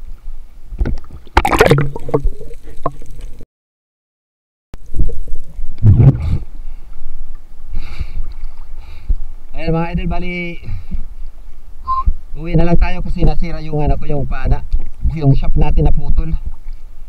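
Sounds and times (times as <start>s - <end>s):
water gurgling and splashing: 0.8s - 3.4s.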